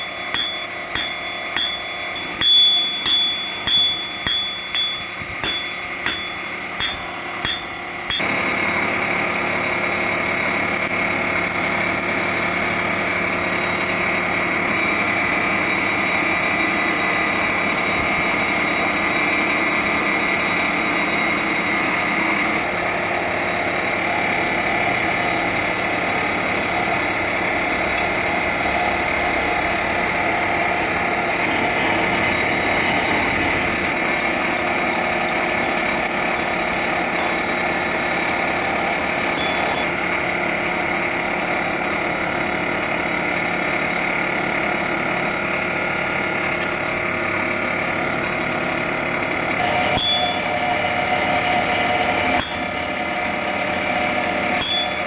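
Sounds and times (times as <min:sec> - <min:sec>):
constant high tones: 0:00.0 - 0:08.8, 0:32.2 - 0:40.6, 0:49.6 - 0:50.9, 0:52.4 - 0:53.0, 0:54.6 - 0:55.0
machinery droning: 0:00.0 - 0:55.0.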